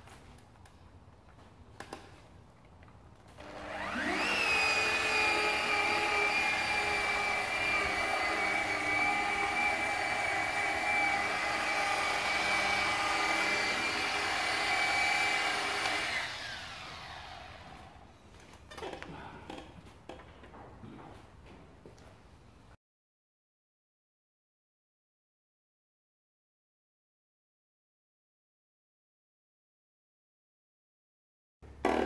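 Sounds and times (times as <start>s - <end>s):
electric motor whining: 3.4s - 18.0s.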